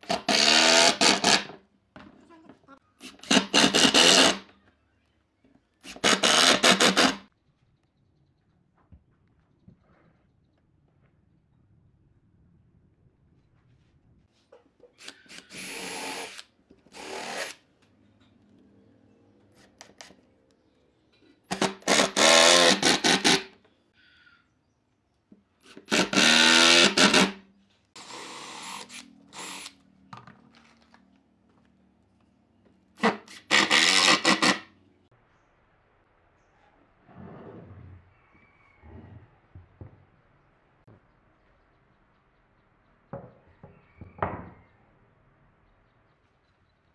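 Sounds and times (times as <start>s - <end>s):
power drill boring into wood: 0.0s - 1.6s, 3.1s - 4.5s, 5.9s - 7.2s, 15.0s - 17.6s, 21.5s - 23.4s, 25.7s - 27.4s, 28.0s - 29.8s, 33.0s - 34.6s.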